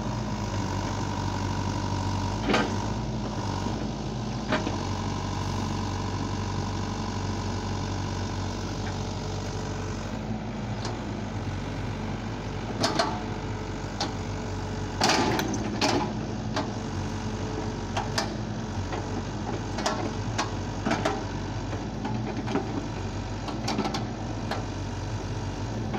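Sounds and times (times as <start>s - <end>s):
excavator diesel engine running: 0.0s - 25.9s
excavator bucket clanks and knocks: 12.7s - 13.3s, 15.0s - 16.8s, 17.9s - 24.7s.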